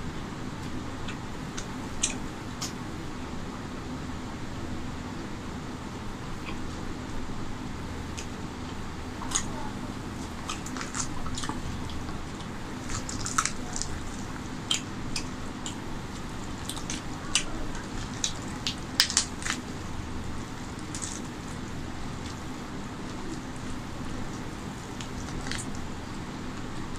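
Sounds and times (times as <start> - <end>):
hand squishing sticky food: 8.1 - 26.9
small irregular clicks: 10.5 - 19.7.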